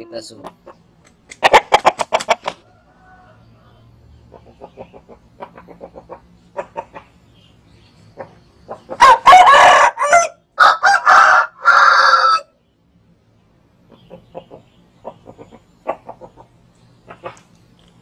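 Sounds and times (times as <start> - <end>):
rooster crowing: 2.6 - 4.0, 8.9 - 12.6.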